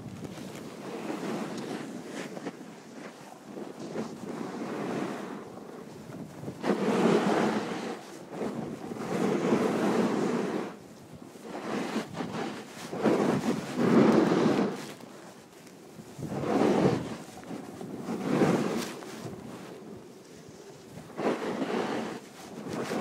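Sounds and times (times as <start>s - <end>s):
snowboard sliding over snow: 0.0s - 23.0s
wind buffeting microphone: 0.0s - 23.0s.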